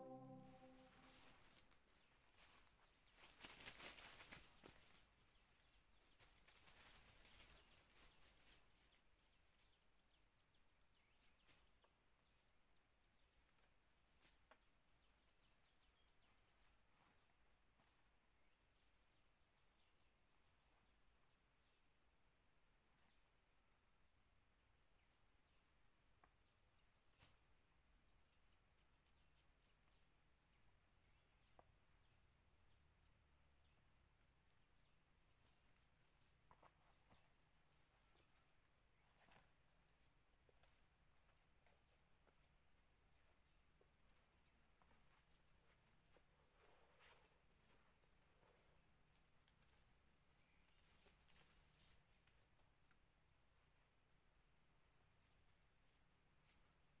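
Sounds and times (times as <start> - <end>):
insect chirping: 0.0 - 57.0
faint clicks and rustles: 2.3 - 5.2, 6.0 - 8.9.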